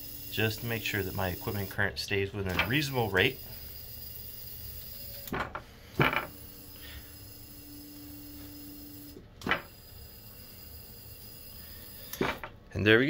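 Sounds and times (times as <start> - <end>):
hydraulic pump humming: 0.0 - 12.6
mechanism clunks: 2.4 - 2.9, 5.2 - 6.3, 9.4 - 9.7.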